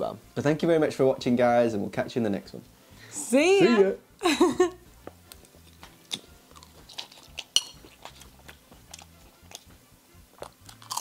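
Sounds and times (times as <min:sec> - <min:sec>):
people chewing and crunching food: 0:05.0 - 0:11.0
utensils clicking against bowls: 0:06.9 - 0:09.6.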